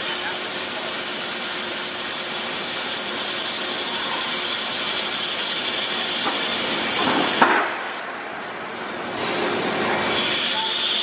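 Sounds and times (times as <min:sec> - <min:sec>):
drill boring into steel: 0:00.0 - 0:07.4, 0:10.1 - 0:11.0.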